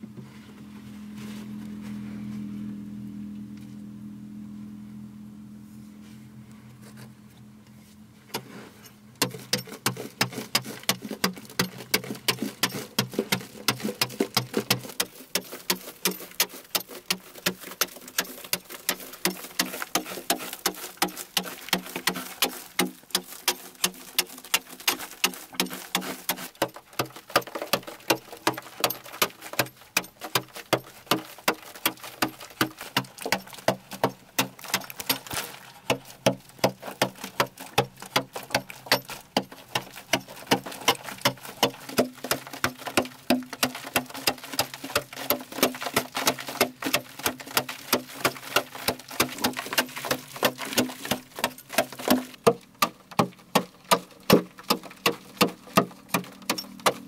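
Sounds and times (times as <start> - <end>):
low hum: 0.0 - 9.2
digging tool chopping earth: 8.3 - 57.0.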